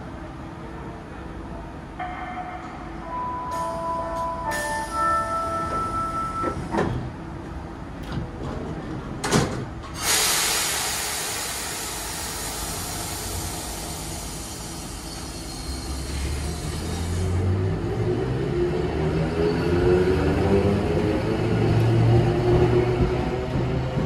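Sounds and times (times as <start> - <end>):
tram doors closing: 0.1 - 24.0
rush of compressed air: 10.0 - 15.4.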